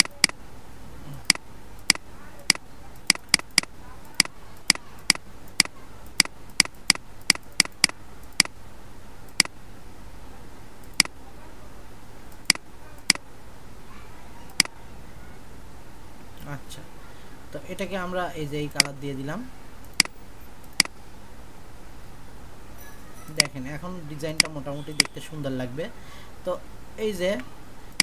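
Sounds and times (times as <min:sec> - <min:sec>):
computer mouse button clicking: 0:00.0 - 0:00.4, 0:01.2 - 0:08.6, 0:09.3 - 0:09.6, 0:10.8 - 0:11.2, 0:14.5 - 0:14.8, 0:19.8 - 0:21.0, 0:24.4 - 0:25.1
faint low hum: 0:00.0 - 0:28.0.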